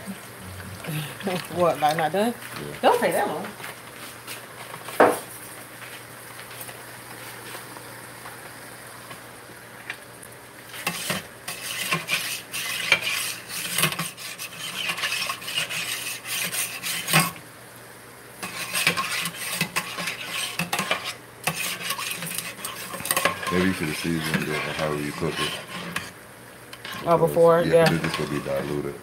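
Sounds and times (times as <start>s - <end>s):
metal tongs scraping in pot: 10.7s - 17.4s, 18.4s - 28.8s.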